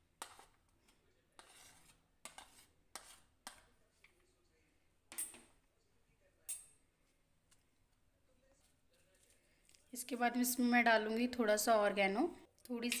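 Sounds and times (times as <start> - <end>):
spoon scraping plate and bowl: 0.2 - 0.6, 1.4 - 3.8.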